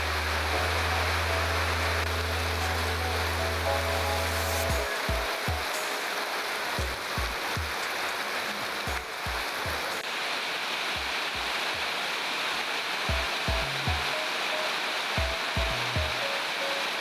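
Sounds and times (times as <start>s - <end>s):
background music with deep drum: 0.0s - 6.0s, 6.8s - 7.9s, 8.9s - 9.9s, 13.1s - 14.2s, 15.2s - 16.2s
heavy rain on roofs and foliage: 0.0s - 17.0s.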